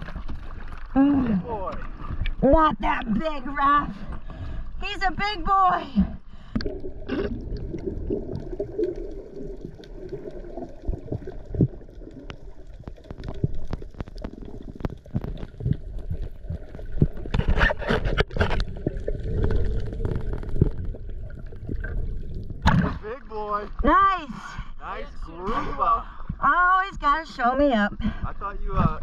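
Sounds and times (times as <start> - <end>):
underwater gurgling: 0.0 - 4.8, 5.7 - 24.7
low underwater rumble: 6.0 - 29.0.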